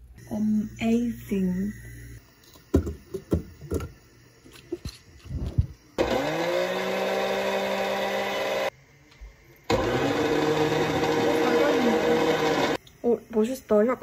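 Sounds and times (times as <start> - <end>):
blender jar knocks and clatters: 2.7 - 3.9
blender motor running: 6.0 - 8.8, 9.7 - 12.8.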